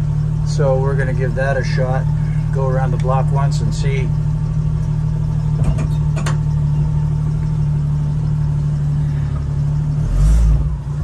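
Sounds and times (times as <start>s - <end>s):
engine running: 0.0s - 11.0s.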